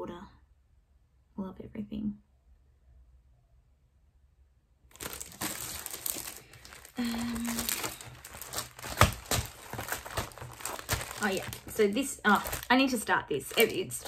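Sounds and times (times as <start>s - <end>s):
plastic sleeve crinkling: 4.9s - 14.0s.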